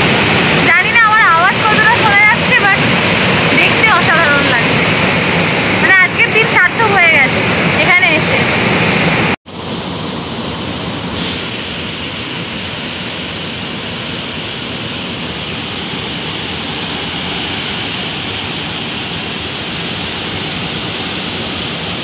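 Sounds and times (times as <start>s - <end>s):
water rushing through spillway: 0.0s - 22.0s.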